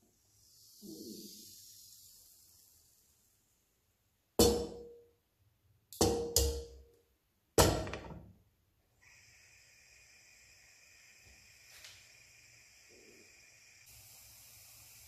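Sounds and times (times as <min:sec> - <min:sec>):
gas burner hissing: 0:00.0 - 0:03.6, 0:09.0 - 0:15.0.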